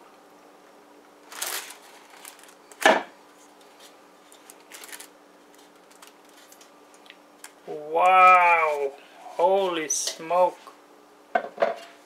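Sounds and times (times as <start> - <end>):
pan knocking on counter: 11.3 - 11.9.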